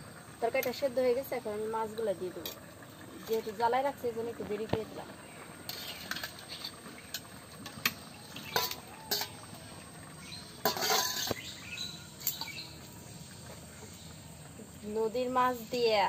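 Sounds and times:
metal clatter: 0:05.7 - 0:09.4, 0:10.6 - 0:11.5
metal spoon clinking on bowl: 0:08.5 - 0:09.4, 0:10.6 - 0:11.4.

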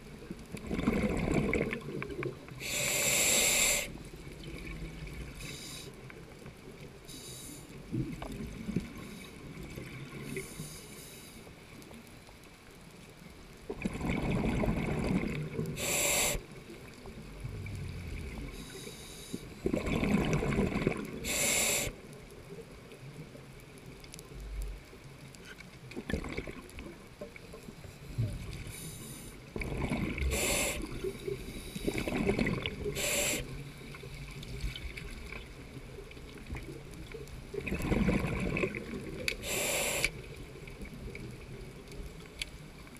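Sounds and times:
exhaled bubbles rushing: 0:00.6 - 0:02.1, 0:13.7 - 0:15.8, 0:17.2 - 0:18.6, 0:19.6 - 0:21.2, 0:26.0 - 0:27.0, 0:29.6 - 0:31.1, 0:31.8 - 0:33.1, 0:37.5 - 0:39.2
steady low hiss: 0:15.5 - 0:19.7.

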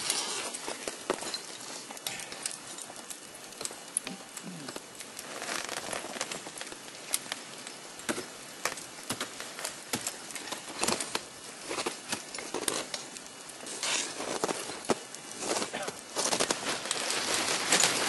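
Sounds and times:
crampons scraping ice: 0:08.0 - 0:13.0, 0:13.6 - 0:18.0.

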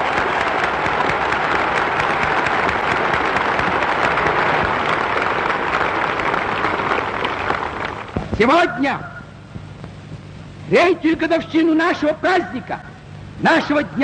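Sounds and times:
large crowd applauding: 0:00.0 - 0:08.2.

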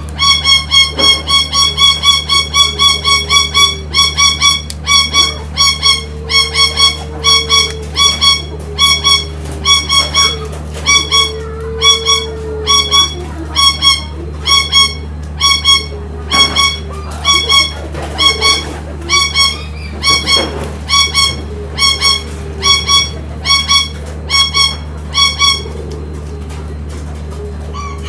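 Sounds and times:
doves cooing: 0:00.0 - 0:28.0
steady low hum: 0:00.0 - 0:28.0.

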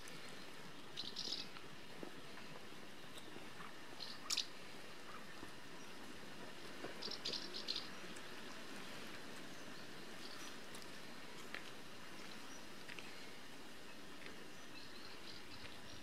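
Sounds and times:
soft steady hiss: 0:00.0 - 0:16.0.

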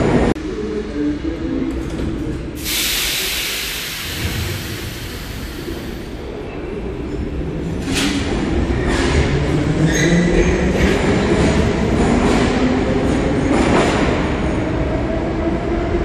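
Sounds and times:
air brake hiss: 0:02.6 - 0:06.2.

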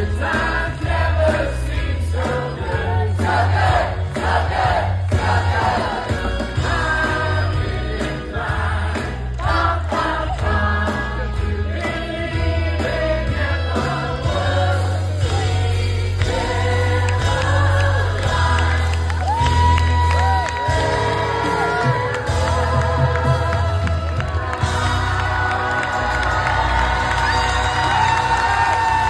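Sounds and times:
cast singing together: 0:00.0 - 0:19.2
live band with bass line: 0:00.0 - 0:29.0.

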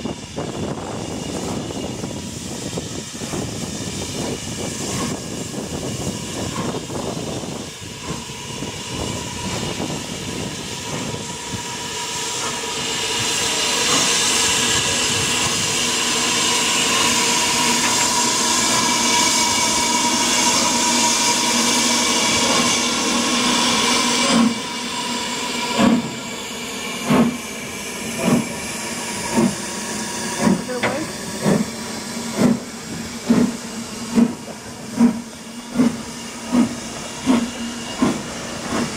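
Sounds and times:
steam locomotive exhaust chuffs: 0:00.0 - 0:38.9.

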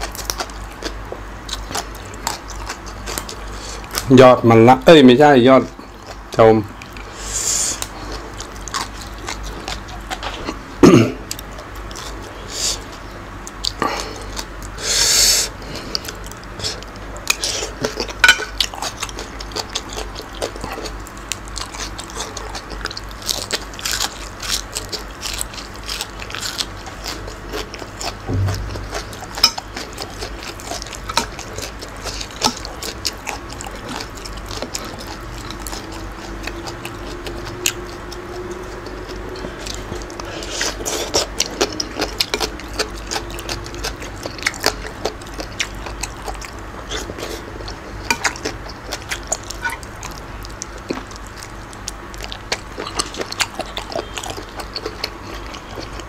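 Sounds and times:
crunchy chewing: 0:00.0 - 0:04.1, 0:05.7 - 0:56.0.

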